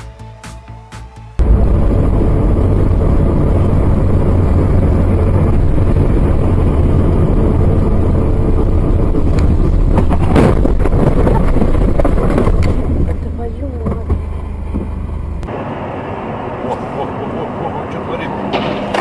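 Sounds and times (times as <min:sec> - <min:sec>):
car engine: 0:01.4 - 0:19.0
road rumble: 0:01.4 - 0:19.0.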